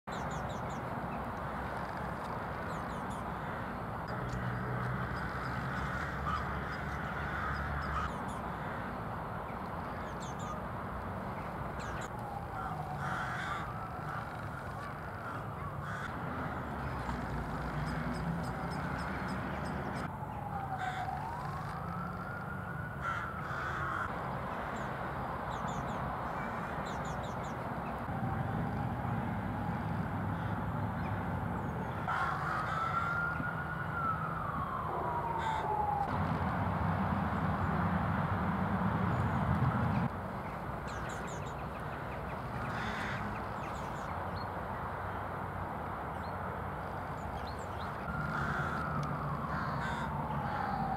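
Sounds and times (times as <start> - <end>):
crows cawing: 3.2 - 9.0, 11.8 - 20.1, 20.7 - 21.8, 23.0 - 24.9, 26.3 - 27.2, 30.3 - 30.7, 31.8 - 34.1, 35.0 - 36.0, 42.6 - 43.8, 47.8 - 50.9
distant siren wailing: 10.0 - 24.2, 25.8 - 40.1, 47.1 - 50.9.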